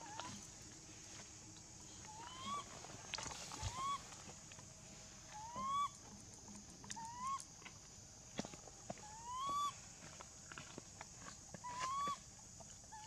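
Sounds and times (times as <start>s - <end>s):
infant monkey coo calls: 0.0s - 0.4s, 1.9s - 2.8s, 3.5s - 4.1s, 5.3s - 6.0s, 6.9s - 7.5s, 9.0s - 9.8s, 11.6s - 12.3s.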